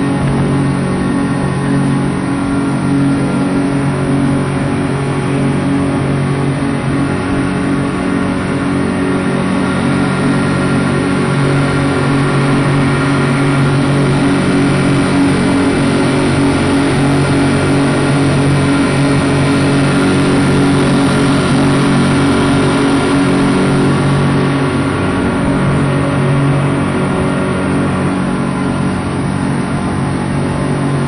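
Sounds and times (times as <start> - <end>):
outboard motors droning: 0.0 - 31.0
rushing boat wake: 0.0 - 31.0.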